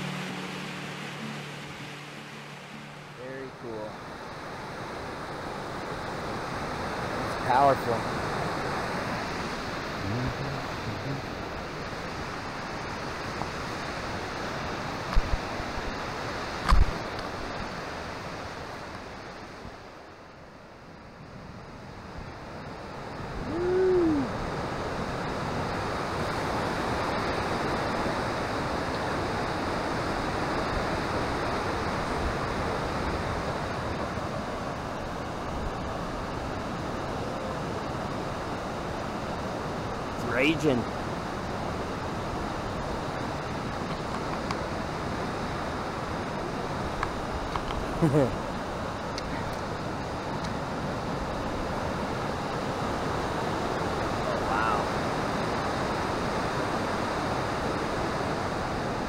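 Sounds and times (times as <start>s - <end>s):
brief rising and falling tone: 0.0s - 3.6s
river rushing through rocks: 0.0s - 20.8s, 21.4s - 59.0s.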